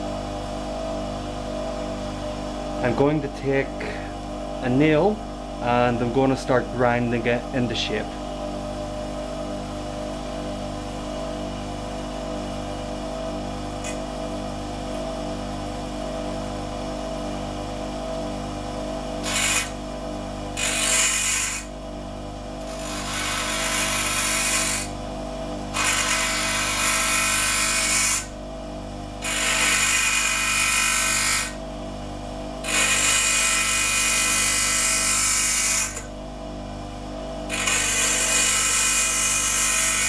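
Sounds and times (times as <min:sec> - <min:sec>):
bench grinder motor humming: 0:12.2 - 0:15.3, 0:19.1 - 0:21.8, 0:22.5 - 0:28.4, 0:29.1 - 0:36.2, 0:37.3 - 0:40.0
nail grinding on wheel: 0:19.2 - 0:19.8, 0:20.6 - 0:21.7, 0:22.6 - 0:25.0, 0:25.7 - 0:28.3, 0:29.2 - 0:31.6, 0:32.6 - 0:36.1, 0:37.5 - 0:40.0.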